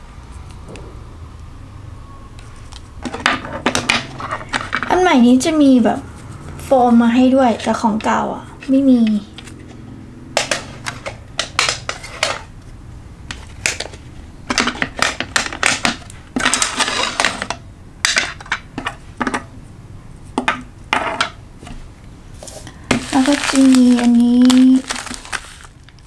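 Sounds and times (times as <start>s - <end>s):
plastic cases clicking and knocking: 10.4s - 12.5s, 13.3s - 19.5s.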